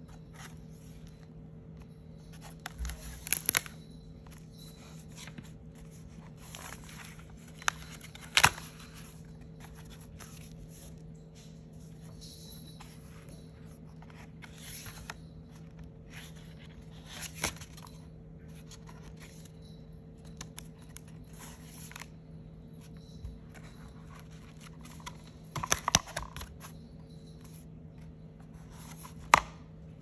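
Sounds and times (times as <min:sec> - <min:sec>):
faint steady hum: 0:00.0 - 0:30.0
crackling paper page flip: 0:02.3 - 0:11.0, 0:13.7 - 0:19.5, 0:20.2 - 0:22.2
paper pages rustling: 0:02.3 - 0:11.0, 0:12.8 - 0:19.5, 0:20.3 - 0:22.1, 0:28.4 - 0:29.6.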